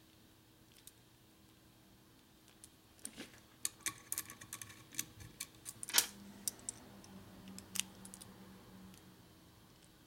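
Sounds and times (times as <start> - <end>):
small metal parts clicking: 3.6 - 6.8.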